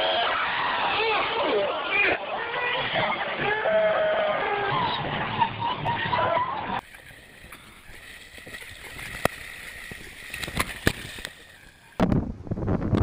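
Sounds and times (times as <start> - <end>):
water sloshing and splashing: 6.8 - 12.0.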